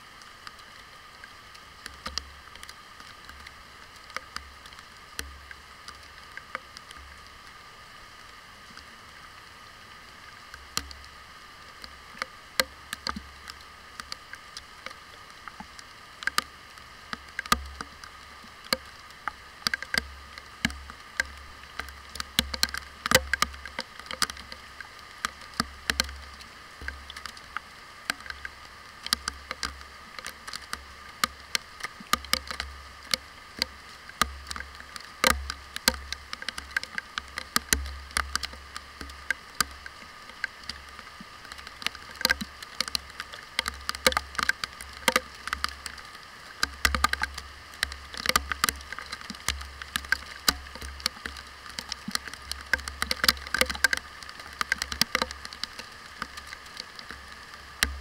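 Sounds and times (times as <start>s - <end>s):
steady hiss of rain: 0.0s - 58.0s
raindrops ticking on plastic housing: 0.2s - 58.0s.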